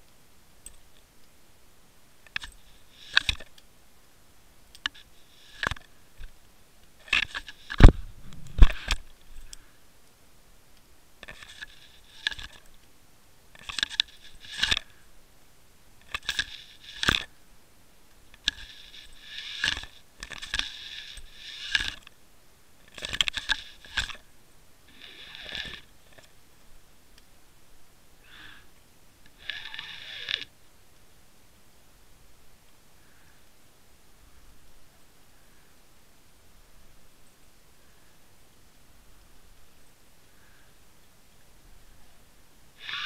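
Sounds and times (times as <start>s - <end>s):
heavy thumps: 7.8s - 9.0s.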